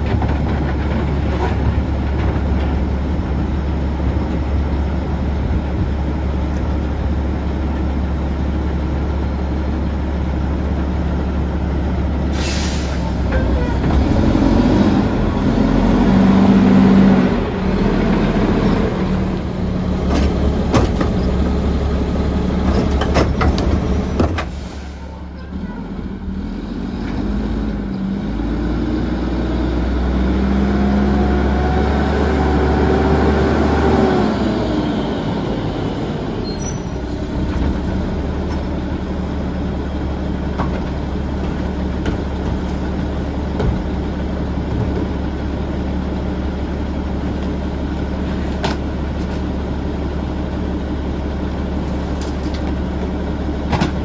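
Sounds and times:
garbage truck diesel engine: 0:00.0 - 0:54.0
air brake hiss: 0:12.3 - 0:13.3, 0:24.5 - 0:25.3.

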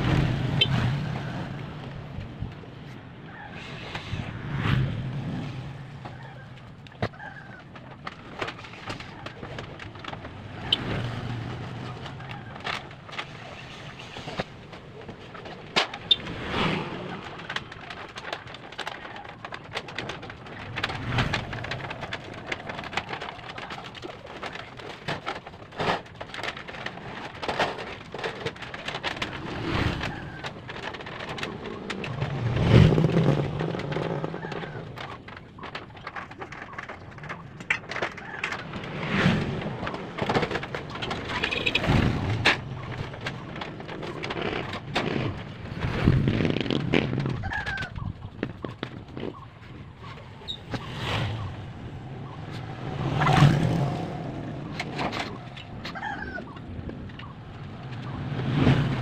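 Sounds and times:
motor vehicles passing: 0:00.0 - 0:06.8, 0:09.4 - 0:14.4, 0:29.1 - 0:35.6, 0:38.5 - 0:59.0
knocks and clatter: 0:00.0 - 0:59.0.

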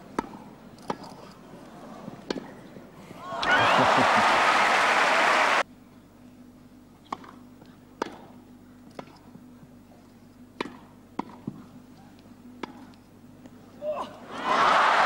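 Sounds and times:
tennis ball struck by rackets: 0:10.6 - 0:11.6.

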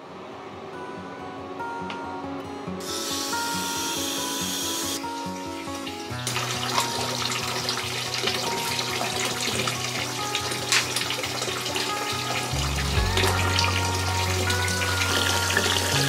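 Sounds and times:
water splashing in a bathtub: 0:06.3 - 0:16.0
background music with bass line: 0:12.5 - 0:16.0.

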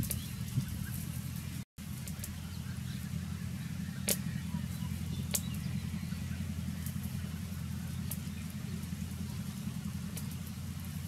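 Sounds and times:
steady low hum: 0:00.0 - 0:11.0
wood fire crackling: 0:00.0 - 0:11.0
sharp pops from fire: 0:04.0 - 0:04.3, 0:05.2 - 0:05.6, 0:10.0 - 0:10.9.

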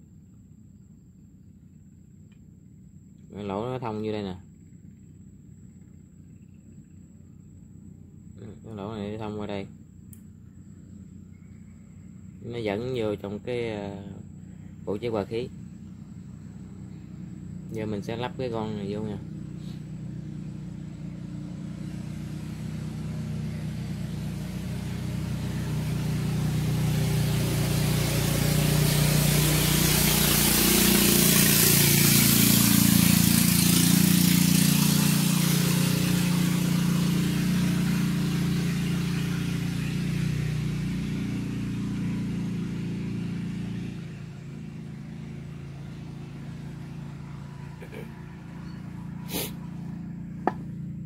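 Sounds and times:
passing vehicle engine: 0:10.3 - 0:51.0.

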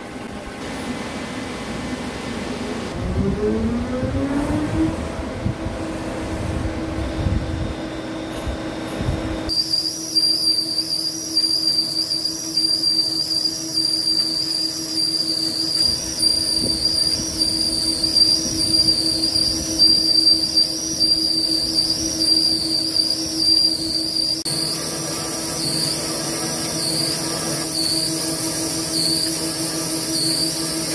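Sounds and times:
lathe low hum: 0:00.0 - 0:10.0, 0:11.0 - 0:30.9
cutting tool squealing: 0:09.5 - 0:30.9.

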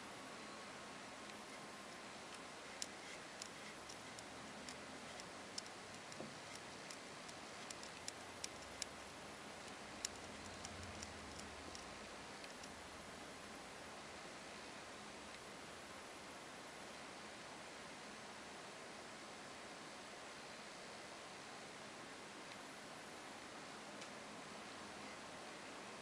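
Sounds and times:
wristwatch crown clicking: 0:02.3 - 0:12.8.

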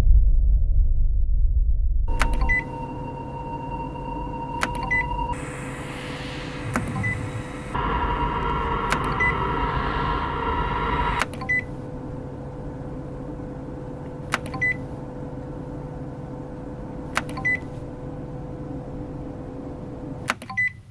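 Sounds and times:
low electronic hum: 0:00.0 - 0:20.2
clicks: 0:02.1 - 0:02.7, 0:04.6 - 0:05.2
short high beep: 0:02.1 - 0:05.4, 0:06.8 - 0:07.4
bright droning tone: 0:02.1 - 0:12.1.

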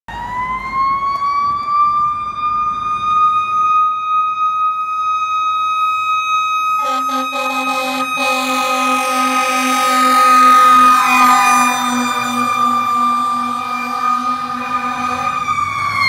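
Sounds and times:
fire engine siren: 0:00.1 - 0:16.0
loud horn blasts: 0:06.7 - 0:16.0.

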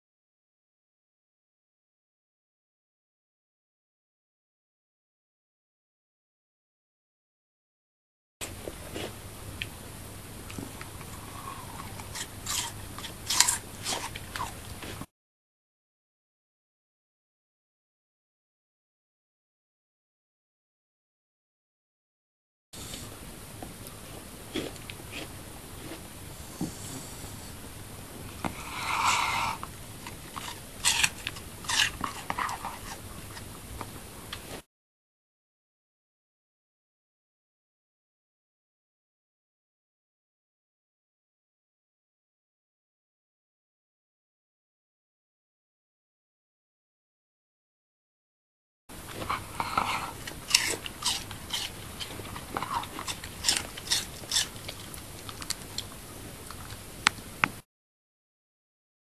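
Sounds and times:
wet chewing clicks: 0:10.5 - 0:15.0, 0:29.6 - 0:34.5, 0:49.1 - 0:57.6
dog crunching apple: 0:10.8 - 0:15.0, 0:30.0 - 0:34.5, 0:49.1 - 0:56.9
dog snuffling breath: 0:25.1 - 0:27.7, 0:28.4 - 0:29.7, 0:49.2 - 0:54.5.

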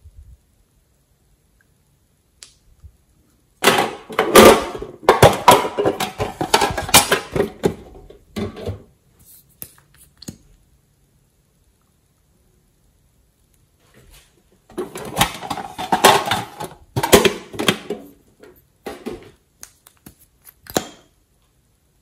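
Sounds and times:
metal tin rattling: 0:03.6 - 0:07.8, 0:14.8 - 0:18.0.

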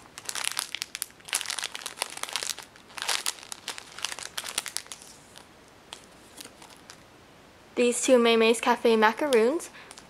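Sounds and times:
plastic bags crinkling: 0:00.0 - 0:07.0.

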